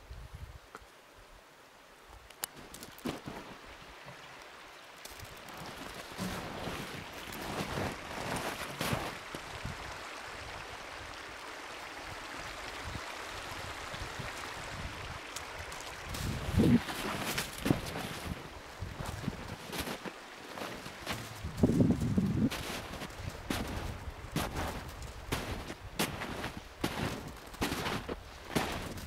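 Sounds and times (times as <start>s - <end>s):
steady rushing hiss: 0.9s - 29.0s
footsteps crunching in snow: 2.5s - 3.6s, 5.1s - 9.4s, 15.3s - 29.0s.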